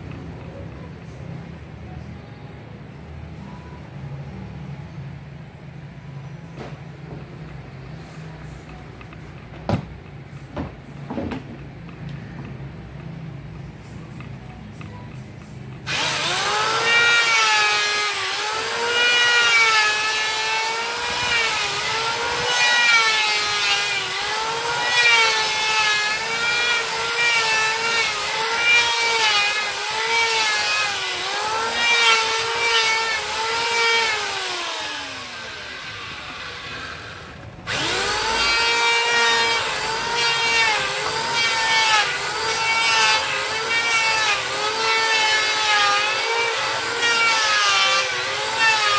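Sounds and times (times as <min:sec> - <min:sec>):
electric sander on wood: 0:15.9 - 0:48.9.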